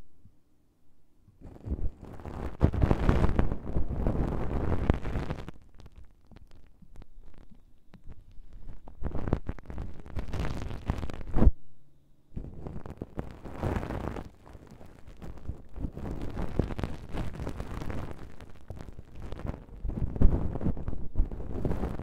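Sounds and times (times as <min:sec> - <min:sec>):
ear stick scratching in microphone: 0:01.4 - 0:11.5, 0:12.4 - 0:22.0.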